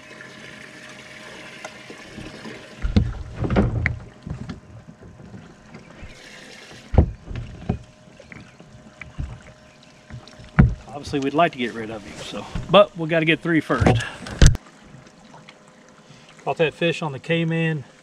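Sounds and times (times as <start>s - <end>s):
faint steady hum: 0.0s - 18.0s
thumps on boat deck: 2.8s - 6.2s, 6.8s - 11.4s, 12.4s - 12.9s, 13.7s - 14.6s.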